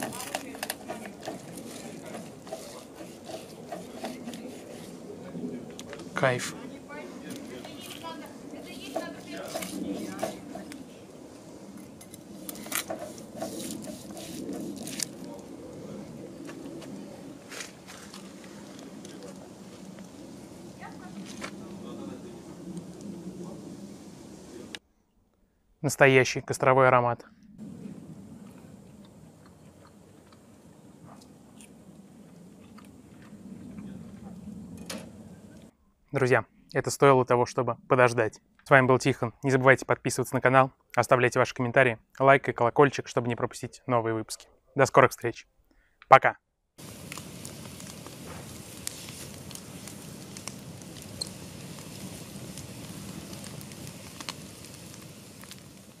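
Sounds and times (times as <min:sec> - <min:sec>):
campfire crackling: 0:00.0 - 0:24.8, 0:27.4 - 0:37.0, 0:46.8 - 0:56.0.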